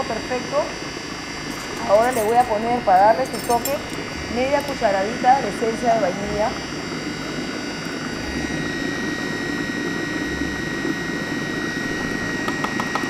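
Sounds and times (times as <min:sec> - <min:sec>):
food processor running: 0:00.0 - 0:13.0.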